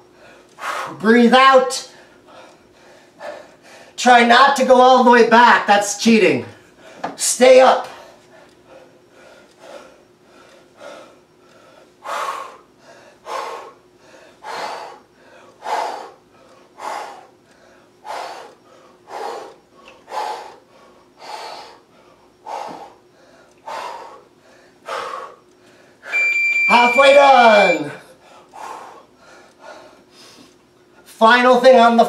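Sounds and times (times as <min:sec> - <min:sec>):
man breathing hard: 0:00.1 - 0:01.0, 0:01.9 - 0:04.0, 0:07.9 - 0:26.1, 0:28.0 - 0:30.6.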